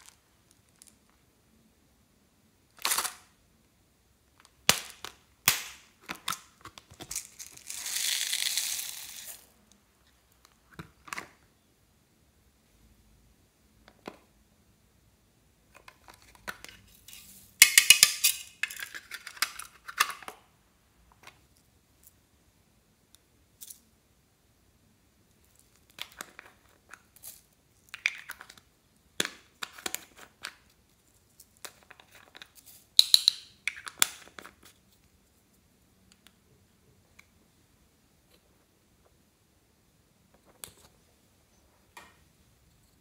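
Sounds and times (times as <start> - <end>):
plastic toys crackling and rattling: 6.1 - 9.6.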